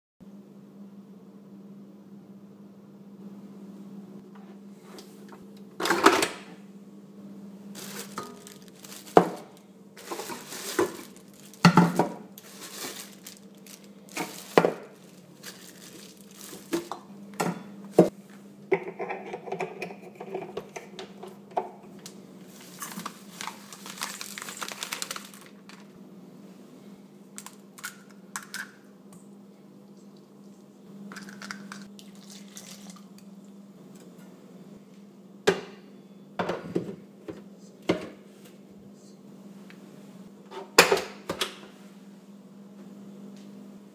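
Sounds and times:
steady low hum: 0:00.2 - 0:40.8
plastic wrap crinkling: 0:07.7 - 0:17.0, 0:22.5 - 0:25.9.

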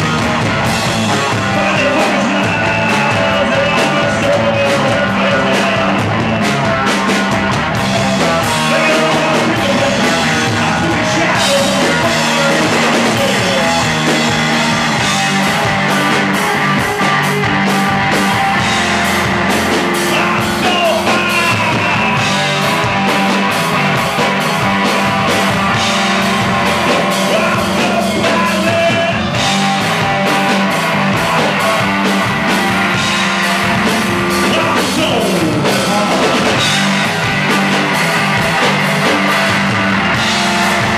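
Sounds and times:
bass guitar: 0:00.0 - 0:40.9
drum kit: 0:00.0 - 0:40.9
electric guitar: 0:00.0 - 0:40.9
man singing: 0:01.0 - 0:06.9, 0:08.1 - 0:15.1, 0:19.6 - 0:23.3, 0:26.4 - 0:30.2, 0:33.8 - 0:36.8.

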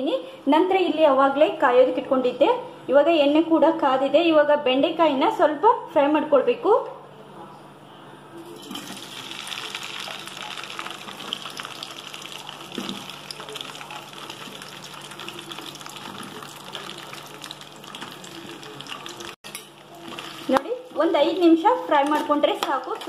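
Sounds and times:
okra sizzling in hot oil: 0:08.5 - 0:21.4.

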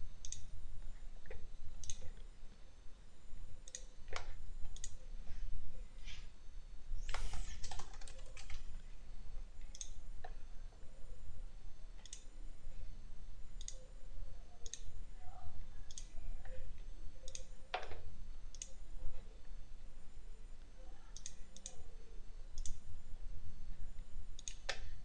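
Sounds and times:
steady low hum: 0:00.0 - 0:25.0
computer mouse clicking: 0:00.2 - 0:00.5, 0:01.2 - 0:02.3, 0:03.6 - 0:05.0, 0:07.0 - 0:08.7, 0:09.6 - 0:10.4, 0:12.0 - 0:12.3, 0:13.6 - 0:13.8, 0:14.6 - 0:14.9, 0:15.9 - 0:16.1, 0:17.2 - 0:18.8, 0:21.1 - 0:21.8, 0:22.6 - 0:22.8, 0:24.4 - 0:24.9.

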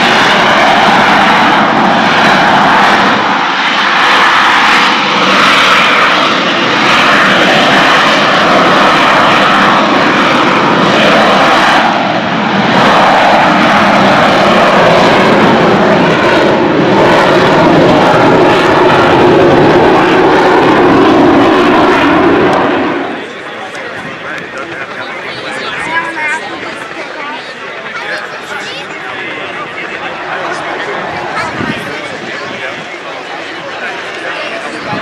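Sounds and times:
jet engine roaring: 0:00.0 - 0:35.0.

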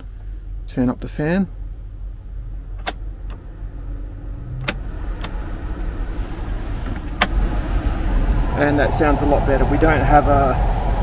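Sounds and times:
blower fan air rush: 0:03.5 - 0:11.0.

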